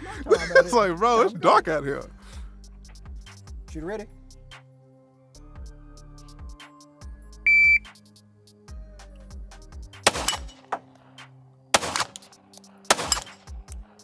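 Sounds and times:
shot timer beep: 0:07.5 - 0:07.9
pistol shots: 0:10.0 - 0:10.8, 0:11.7 - 0:13.6.

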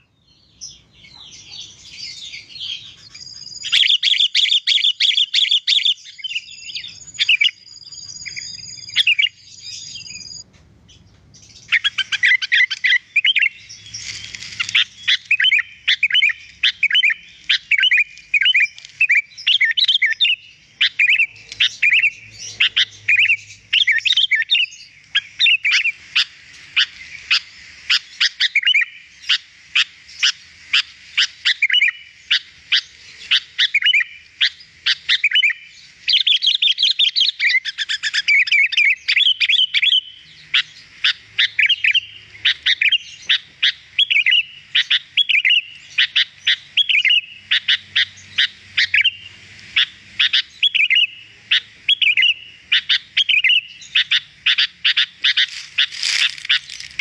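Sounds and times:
bulbul whistled chirps: 0:01.4 - 0:10.5, 0:11.6 - 0:57.0.

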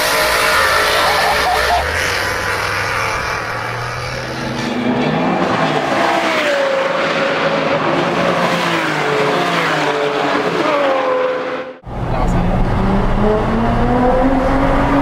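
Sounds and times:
car engine revving hard: 0:00.0 - 0:07.6, 0:12.6 - 0:15.0.

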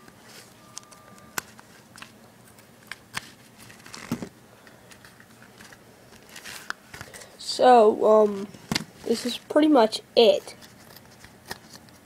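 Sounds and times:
handling noises: 0:00.0 - 0:07.3.

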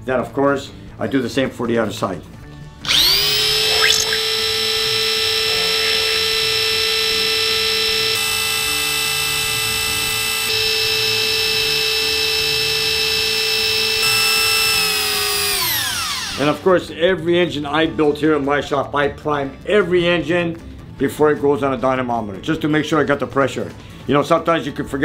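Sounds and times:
electric drill motor running: 0:02.8 - 0:16.6.

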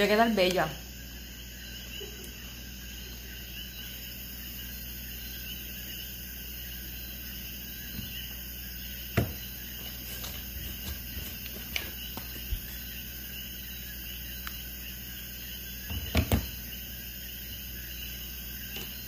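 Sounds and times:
steady low hum: 0:00.0 - 0:19.0
small objects knocking and clicking: 0:09.2 - 0:12.8.

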